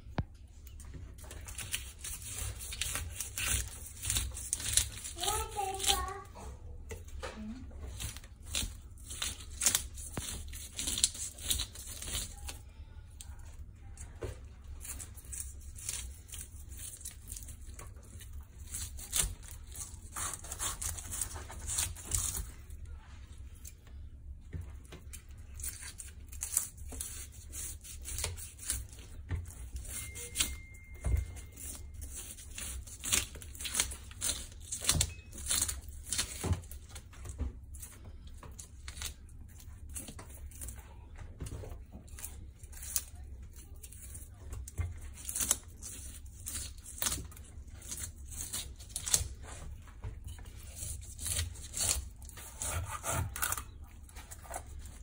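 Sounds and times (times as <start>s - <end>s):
knife scraping fish scales: 50.3s - 55.0s.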